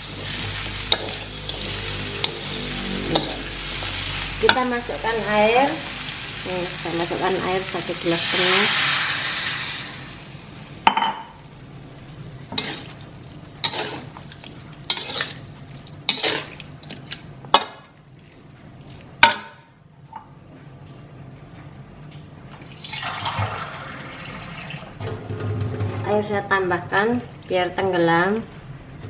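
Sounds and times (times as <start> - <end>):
metal spatula scraping wok: 0.2 - 4.8, 12.5 - 13.0, 13.6 - 14.1, 14.9 - 15.5, 16.1 - 16.6
water poured into hot wok hissing: 7.8 - 10.4.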